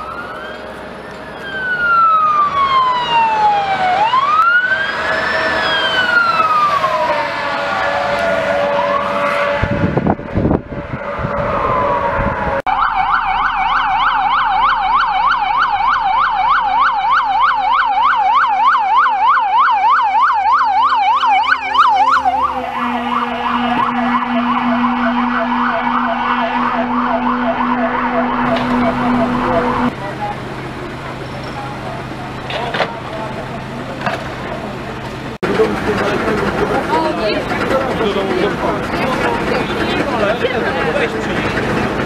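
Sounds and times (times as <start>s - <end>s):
fast yelp siren: 0.0s - 29.9s
steady siren: 0.0s - 33.5s
fire engine siren passing: 0.0s - 42.0s.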